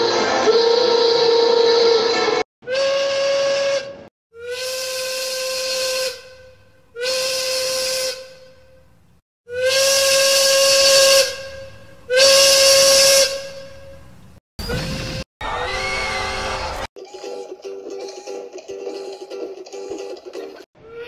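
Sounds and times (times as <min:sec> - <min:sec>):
steam locomotive whistle blasts: 0:00.1 - 0:08.8, 0:09.5 - 0:14.1.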